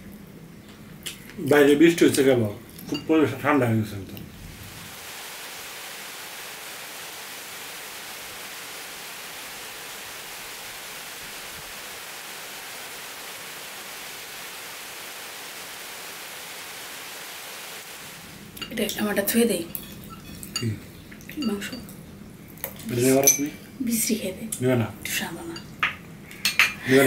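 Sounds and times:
steady rain on trees: 4.5s - 22.0s.

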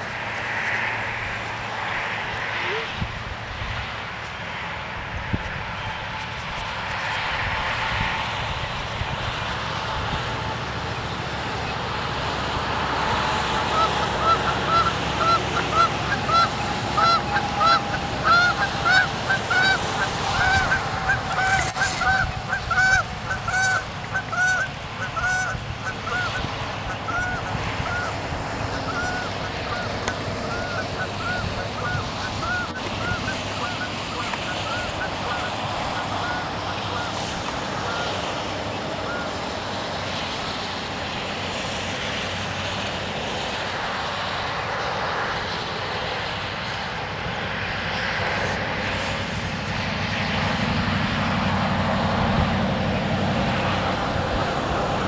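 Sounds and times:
geese honking: 8.9s - 42.3s, 48.0s - 51.6s.

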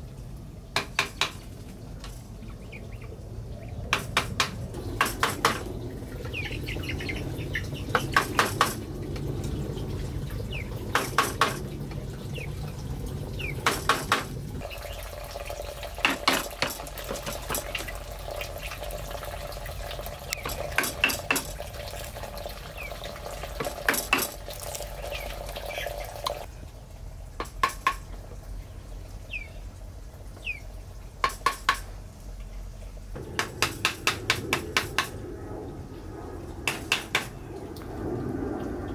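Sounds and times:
sharp knocks: 0.8s - 1.4s, 3.9s - 5.8s, 7.9s - 8.9s, 10.9s - 11.7s, 13.6s - 14.4s, 16.0s - 17.9s, 27.4s - 28.1s, 31.2s - 31.9s, 33.2s - 35.2s, 36.7s - 37.4s
small birds chirping: 1.6s - 8.7s, 10.3s - 11.2s, 12.2s - 12.6s, 13.3s - 13.7s, 20.3s - 20.7s, 22.6s - 23.1s, 24.9s - 26.5s, 28.6s - 30.8s.

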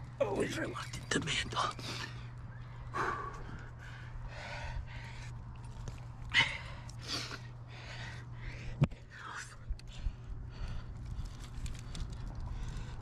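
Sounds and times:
person breathing hard: 1.8s - 5.4s, 6.3s - 9.1s, 9.9s - 13.0s.

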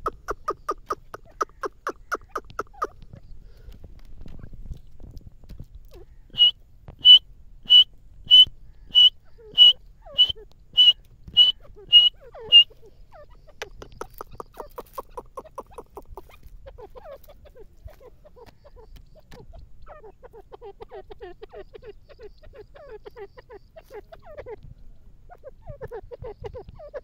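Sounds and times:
francolin whistled calls: 6.0s - 13.5s.

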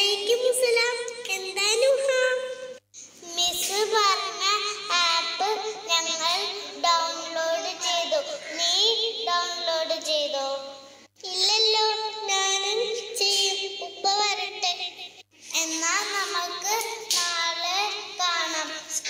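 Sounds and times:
child singing: 3.4s - 10.5s.

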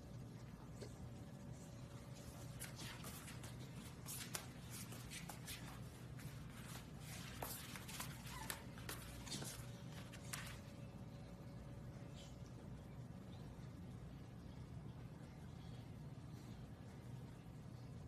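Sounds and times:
dog fur and paws brushing floor: 1.5s - 11.0s.

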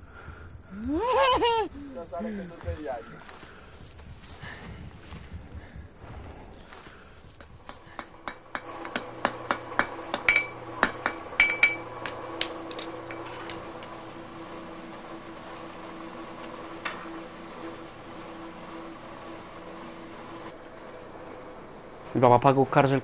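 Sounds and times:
steady low hum: 0.0s - 23.0s
hammer striking metal on anvil: 7.9s - 12.8s.

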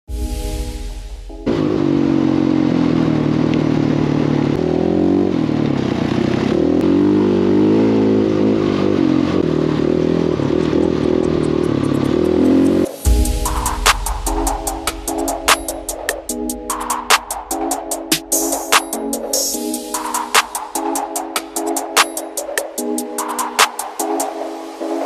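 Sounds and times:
dirt bike engine running: 1.4s - 13.7s
steady rushing noise: 12.8s - 25.0s.

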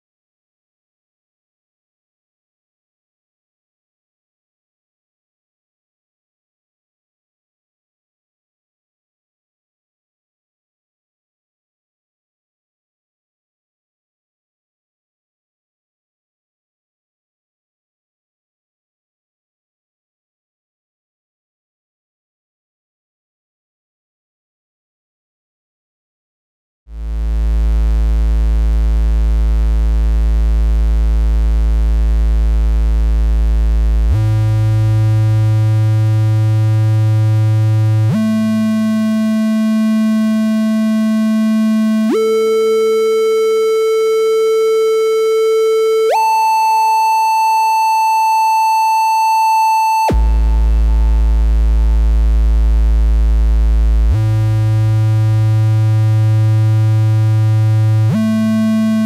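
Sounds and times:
synthesizer triangle-wave tone: 26.9s - 59.0s.

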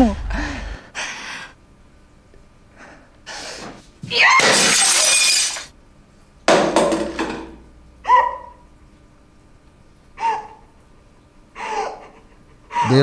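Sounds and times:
glass shattering: 4.4s - 5.7s.

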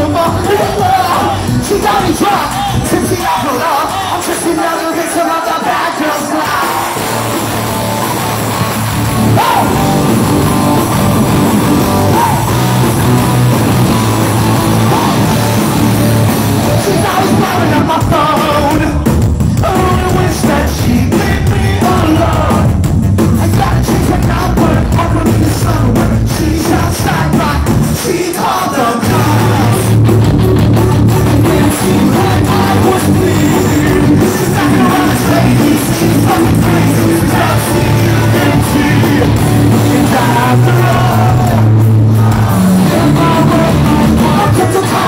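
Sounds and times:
rock band playing live: 0.0s - 45.0s
person singing: 14.4s - 22.8s, 23.4s - 30.0s, 31.1s - 45.0s.

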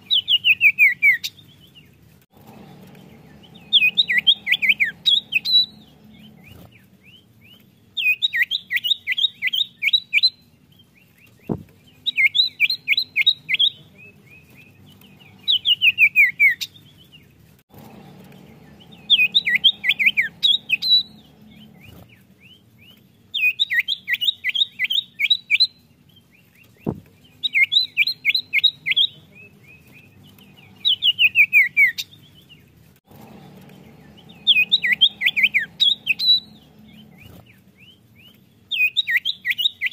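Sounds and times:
faint hum: 2.4s - 6.8s, 17.7s - 22.1s, 28.1s - 31.8s, 33.1s - 37.9s
bird singing sharp notes: 2.5s - 7.2s, 11.4s - 16.7s, 17.8s - 22.6s, 26.7s - 32.1s, 33.2s - 39.9s.

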